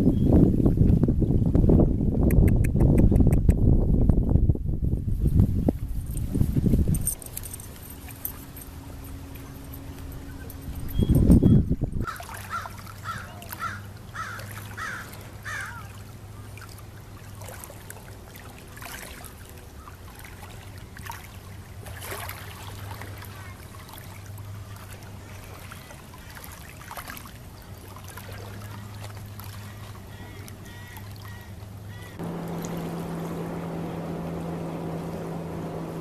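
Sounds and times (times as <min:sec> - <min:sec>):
steady low hum: 0:00.0 - 0:36.0
waves lapping at shore: 0:06.2 - 0:11.0, 0:12.0 - 0:36.0
bird calling: 0:09.4 - 0:16.6, 0:28.6 - 0:33.4.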